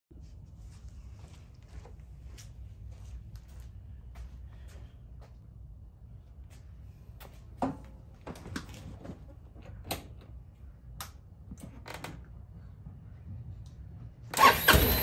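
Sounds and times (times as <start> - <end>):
low steady hum: 0.1 - 14.4
knocks and clicks on scooter: 14.3 - 15.0.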